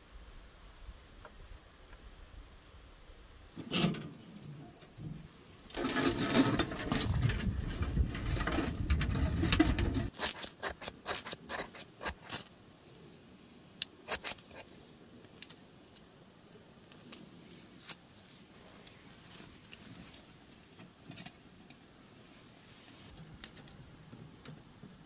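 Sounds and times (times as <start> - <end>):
low rumbling noise: 4.9 - 10.1.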